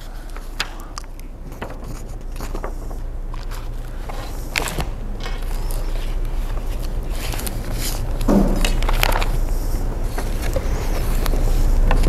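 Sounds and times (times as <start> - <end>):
paper crinkling: 0.0 - 12.0
steady low hum: 0.0 - 12.0.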